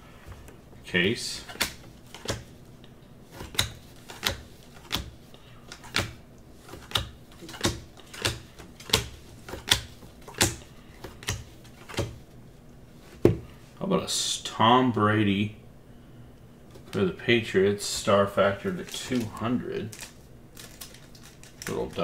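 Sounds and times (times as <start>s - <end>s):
trading cards clicking: 1.4s - 2.6s, 3.4s - 12.2s, 18.7s - 22.0s.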